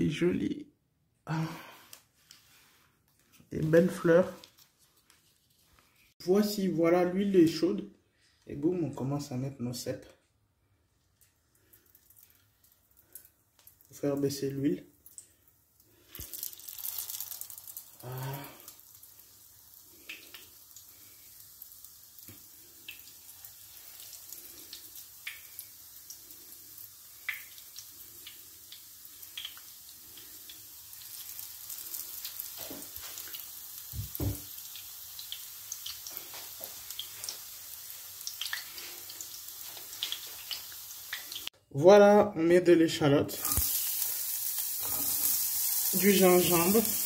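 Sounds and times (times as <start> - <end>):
mushrooms frying in hot oil: 11.8 - 41.5, 43.3 - 47.0.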